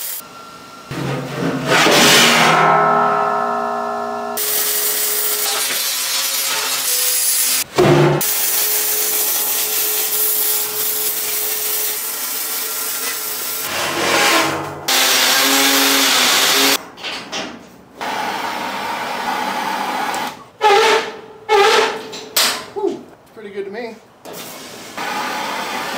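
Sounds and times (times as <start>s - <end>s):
arc welding hiss and crackle: 0.0s - 0.2s, 4.4s - 7.6s, 8.2s - 13.7s.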